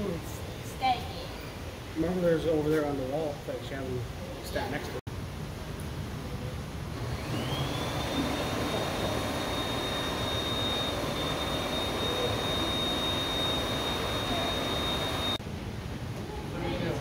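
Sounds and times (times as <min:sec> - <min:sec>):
fan motor whining: 0:06.9 - 0:15.4.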